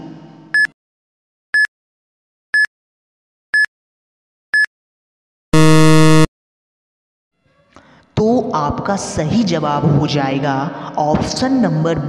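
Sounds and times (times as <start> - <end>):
harsh buzzer: 5.6 - 6.3
short high beeps: 5.6 - 6.3.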